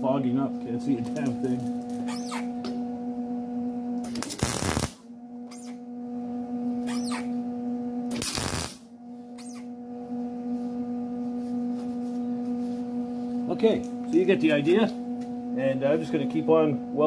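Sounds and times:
steady hum: 0.0s - 17.0s
welder crackling: 4.0s - 5.0s, 8.1s - 8.8s.

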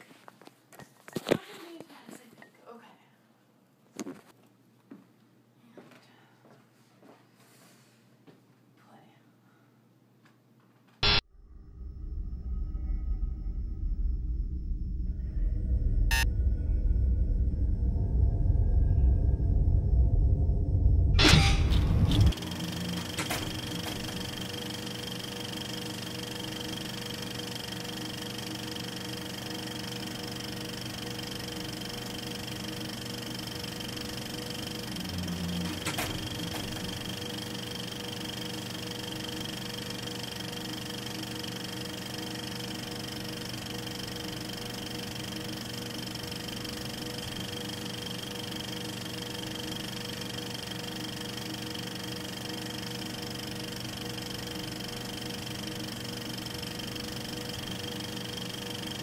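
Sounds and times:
film projector whirring: 21.2s - 59.0s.

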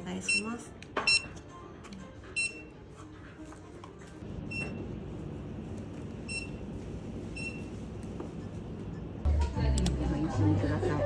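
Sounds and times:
barcode scanner beeps: 0.2s - 1.4s, 2.4s - 2.7s.

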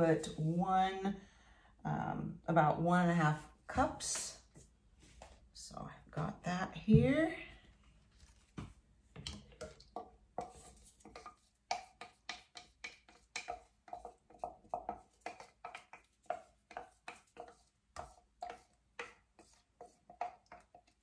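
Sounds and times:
wooden stick tapping plastic cups: 9.2s - 21.0s.

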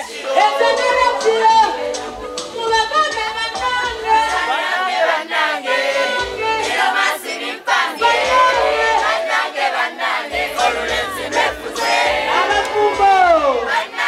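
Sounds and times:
pop backing track: 0.0s - 4.6s, 6.0s - 7.1s, 8.0s - 9.2s, 10.3s - 13.8s
voices singing: 0.0s - 14.0s.

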